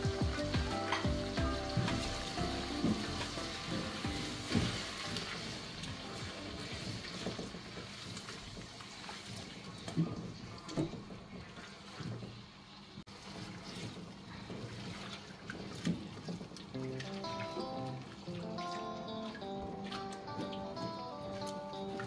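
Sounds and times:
food sizzling in hot oil: 0.0 - 8.6.

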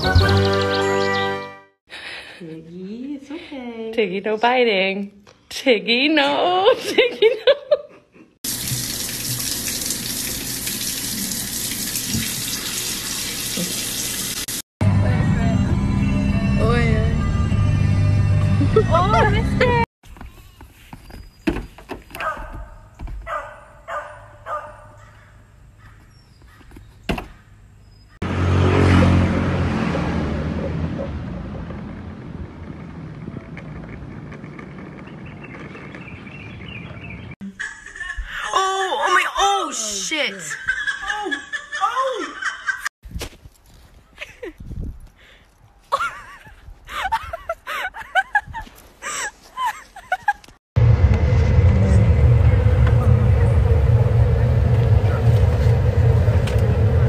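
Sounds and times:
dog barking: 22.2 - 25.4
loud low rumble: 28.2 - 36.3, 50.8 - 57.0.

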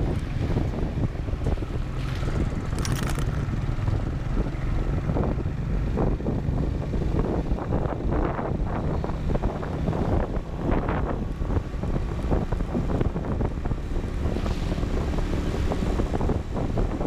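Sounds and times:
motorcycle engine running: 0.0 - 17.0
wind buffeting microphone: 0.0 - 17.0.

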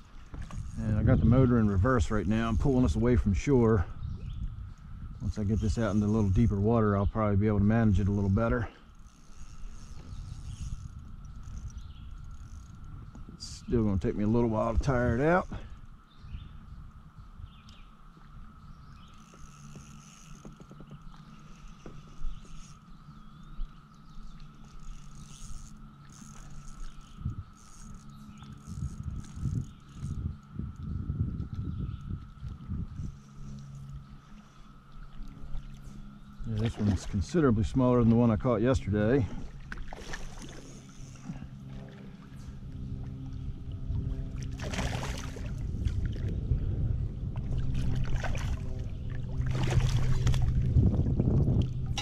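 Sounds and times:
cicadas droning: 0.0 - 52.0
low hum: 0.0 - 52.0
fish splashing in water: 39.5 - 42.4, 44.4 - 46.3, 47.5 - 50.8.

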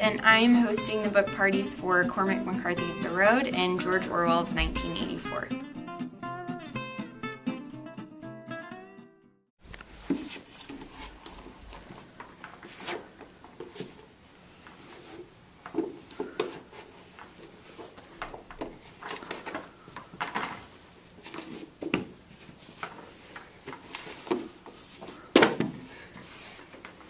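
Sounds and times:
books knocking and rustling: 9.8 - 14.1, 15.2 - 27.0.

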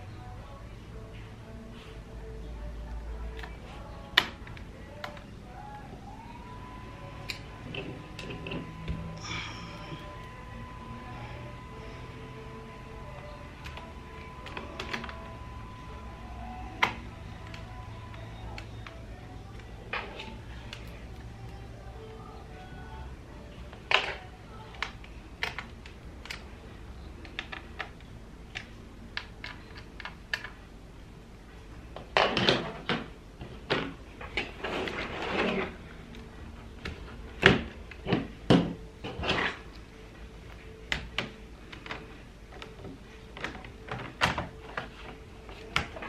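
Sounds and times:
rubbing and scraping: 34.4 - 35.8.

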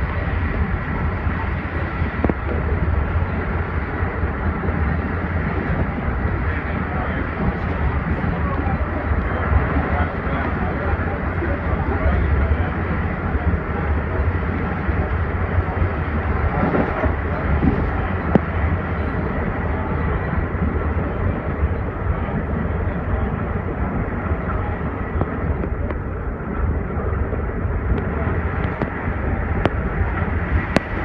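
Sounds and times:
train rumbling: 0.0 - 31.0.

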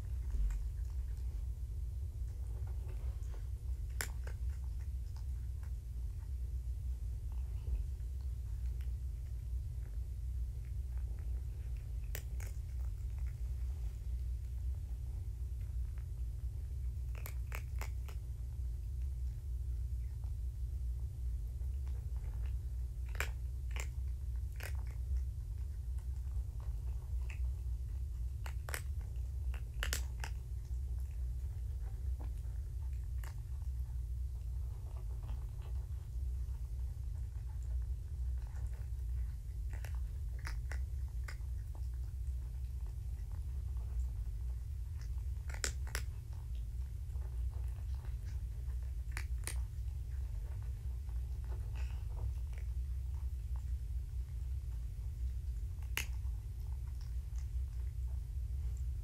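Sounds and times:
low hum: 0.0 - 59.0
kitten nibbling clicks: 3.8 - 6.3, 7.2 - 13.5, 16.9 - 18.4, 21.7 - 54.3, 55.3 - 58.1
faint sharp clicks: 55.8 - 56.3.

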